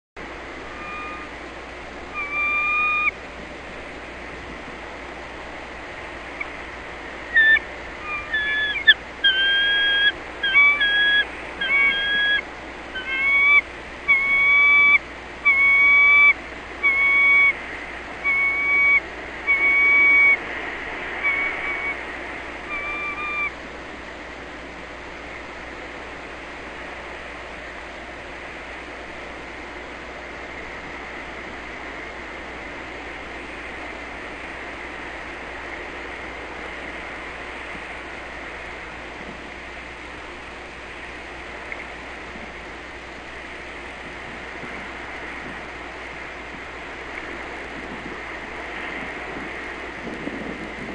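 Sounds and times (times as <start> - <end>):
surf-like hiss: 0.2 - 50.9
eagle whistled calls: 0.6 - 1.3, 2.1 - 3.2, 7.3 - 17.6, 18.2 - 20.4, 21.2 - 22.0, 22.6 - 23.6.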